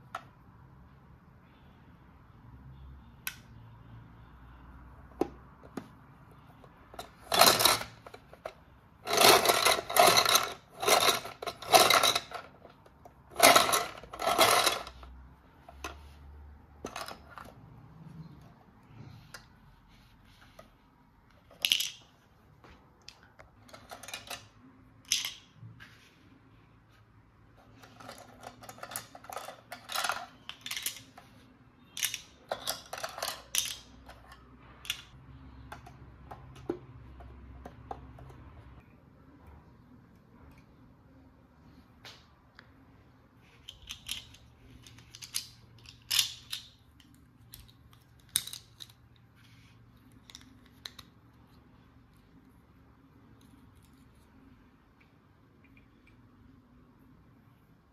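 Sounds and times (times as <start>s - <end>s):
plastic toy parts clattering: 6.6s - 16.2s, 16.8s - 17.6s, 21.4s - 22.2s, 23.0s - 25.6s, 27.6s - 36.8s, 43.4s - 51.2s.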